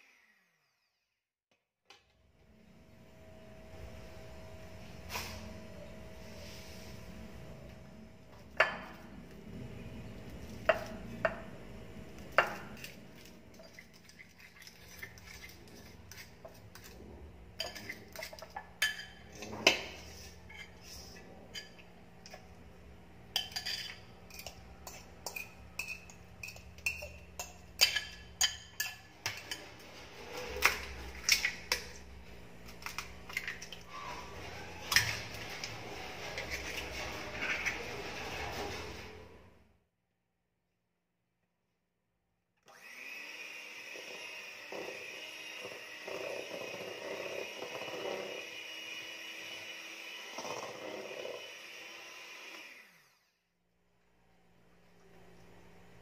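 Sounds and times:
fork clinking on plate and bowl: 0:23.4 - 0:29.7.

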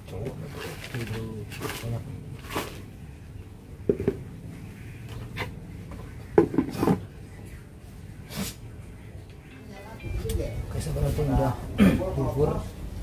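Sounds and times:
plastic tub knocks and scrapes: 0:06.4 - 0:07.1.

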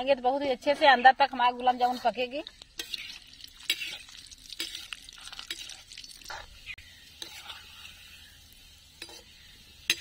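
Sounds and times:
food deep-frying in oil: 0:00.0 - 0:10.0.

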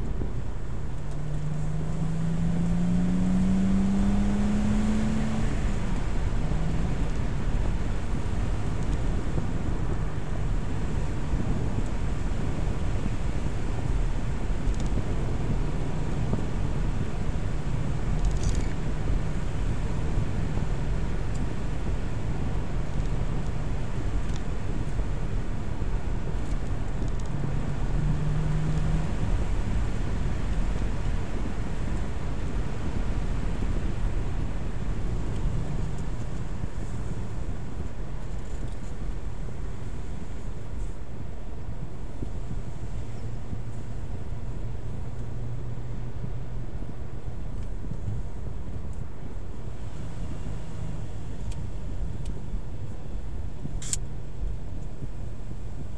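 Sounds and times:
car interior road rumble: 0:00.0 - 0:55.9.

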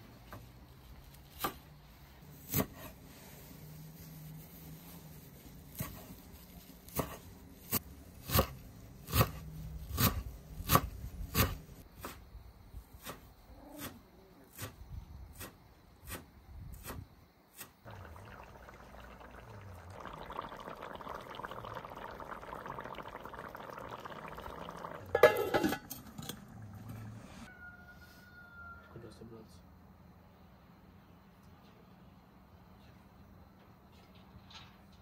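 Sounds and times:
food cooking hiss: 0:17.6 - 0:27.5.

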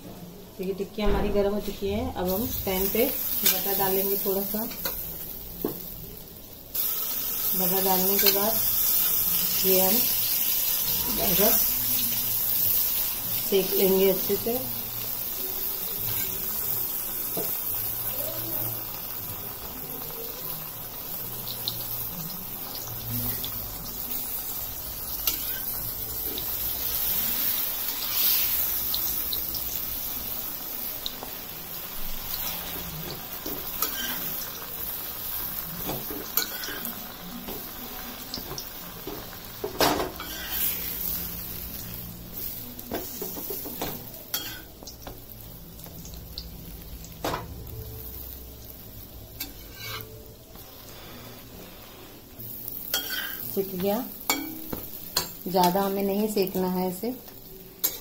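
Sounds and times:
butter sizzling on griddle: 0:02.3 - 0:58.0
spatula scraping griddle: 0:39.9 - 0:41.0, 0:49.4 - 0:52.2, 0:52.9 - 0:53.5.

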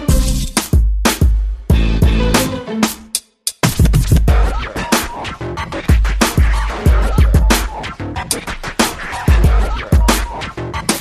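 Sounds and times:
electronic beat music: 0:00.0 - 0:11.0
heavy bass drum: 0:00.1 - 0:02.4, 0:03.6 - 0:04.7, 0:05.8 - 0:07.9, 0:09.2 - 0:10.4.

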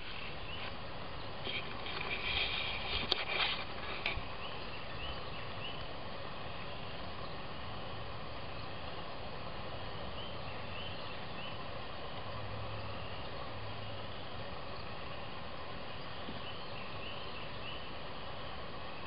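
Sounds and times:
faint bird chirps: 0:10.1 - 0:11.6.

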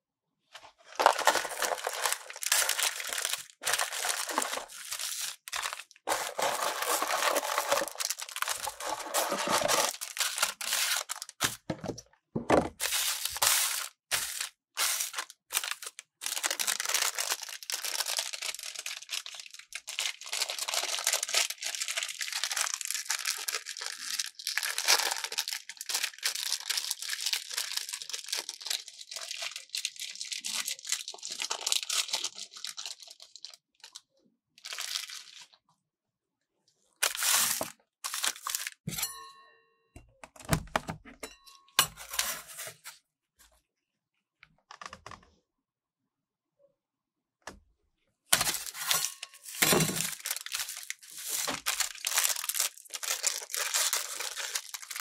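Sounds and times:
plastic wrappers crinkling and tearing: 0:00.8 - 0:11.7, 0:12.7 - 0:35.6, 0:37.0 - 0:38.8, 0:48.3 - 0:55.0.

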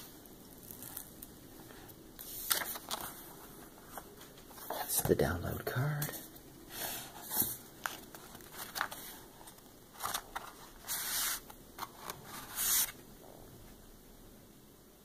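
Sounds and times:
paper and card rustling: 0:00.6 - 0:05.1, 0:06.0 - 0:13.0.

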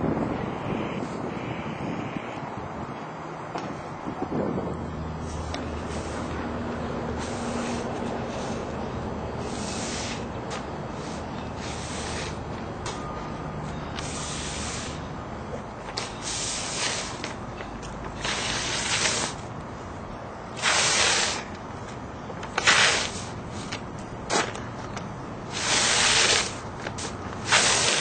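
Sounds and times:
short bursts of hiss: 0:09.4 - 0:10.3, 0:14.0 - 0:15.1, 0:16.1 - 0:17.2, 0:20.6 - 0:21.5, 0:25.5 - 0:28.0.

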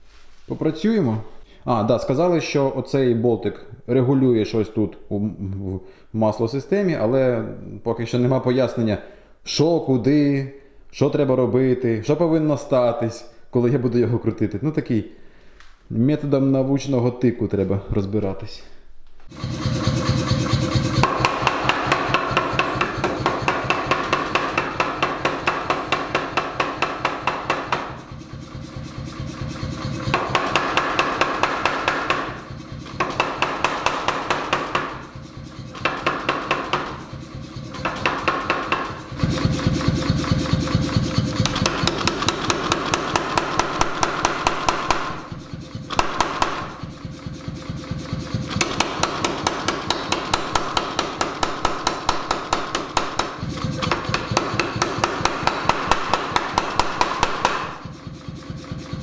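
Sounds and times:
forging hammer striking hot steel: 0:20.9 - 0:28.2, 0:30.0 - 0:39.2, 0:41.4 - 0:46.9, 0:48.5 - 0:57.9.

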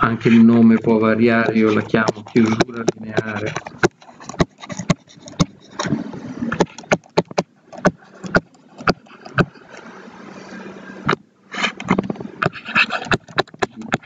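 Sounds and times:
faint stylus scratching: 0:00.0 - 0:09.6, 0:11.0 - 0:14.0
stylus tapping on tablet screen: 0:01.4 - 0:09.5.

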